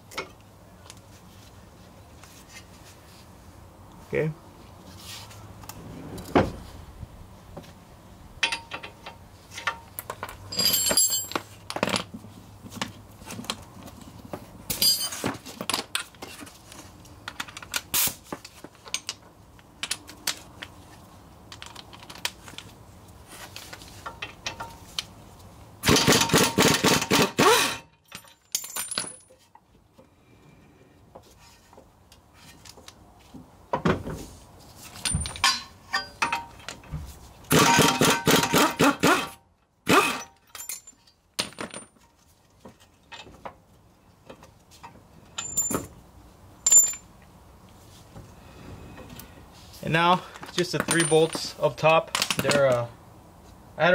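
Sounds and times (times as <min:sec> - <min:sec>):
metal tools clinking: 0:08.4 - 0:11.7, 0:14.7 - 0:16.1, 0:27.7 - 0:29.6, 0:34.9 - 0:36.9, 0:40.1 - 0:42.1, 0:45.3 - 0:46.0, 0:46.6 - 0:47.1, 0:50.4 - 0:52.8.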